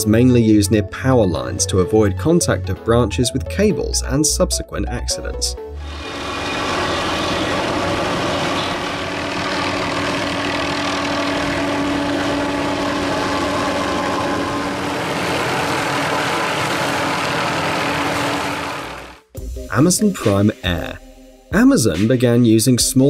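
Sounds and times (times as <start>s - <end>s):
helicopter engine and rotor: 5.8s - 19.2s
steady hum: 5.8s - 19.3s.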